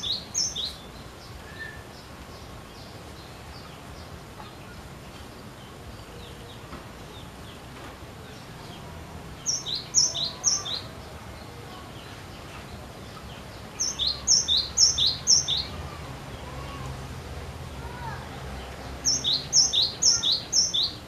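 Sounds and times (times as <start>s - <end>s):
faint high bird calls: 0.0s - 3.7s, 9.5s - 17.0s, 19.0s - 21.0s.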